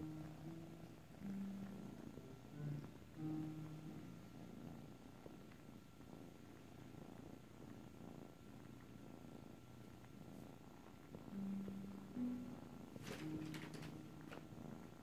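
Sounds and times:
kitten purring: 0.0s - 15.0s.

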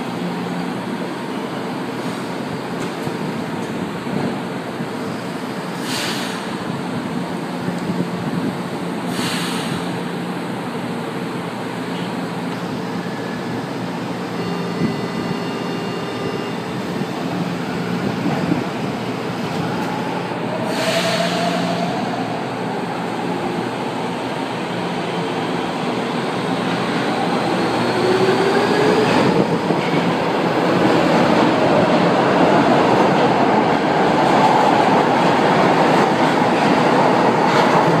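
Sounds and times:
train running rumble: 0.0s - 38.0s
air hiss: 5.7s - 6.6s, 9.1s - 9.9s
traction motors whining: 11.9s - 23.6s
warning tones: 14.2s - 18.6s.

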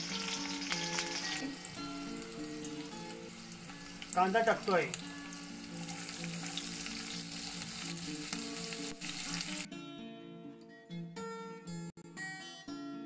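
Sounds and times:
onions sizzling in oil: 0.0s - 9.7s
acoustic guitar music: 0.0s - 13.0s.

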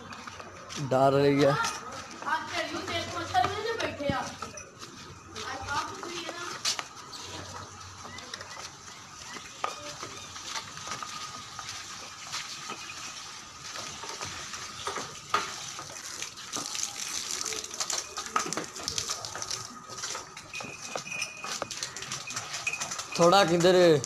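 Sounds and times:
water gushing from a hose: 9.9s - 24.0s.

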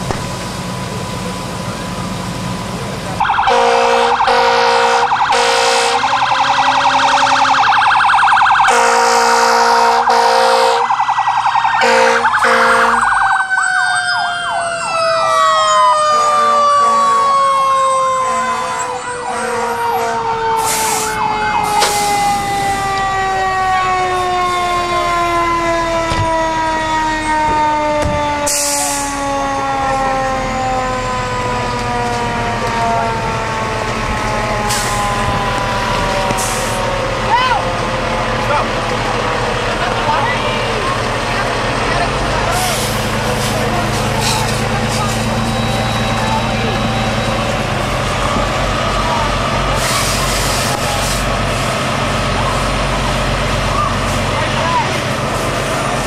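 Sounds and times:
fire engine air horns blasting: 3.2s - 13.4s, 15.2s - 37.7s, 42.4s - 52.9s, 53.8s - 56.0s
siren yelping: 3.2s - 38.6s, 42.5s - 50.9s
siren winding down: 3.2s - 38.8s, 40.1s - 51.3s.

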